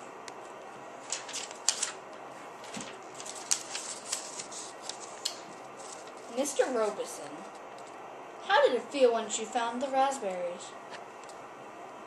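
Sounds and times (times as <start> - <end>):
paper cards rustling and tapping: 1.0 - 2.0, 2.6 - 8.0.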